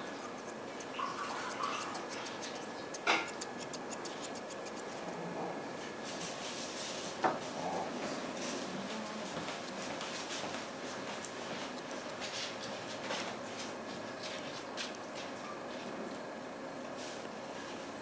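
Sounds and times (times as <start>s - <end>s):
scissors snipping fur: 0.0s - 5.2s, 8.4s - 15.2s.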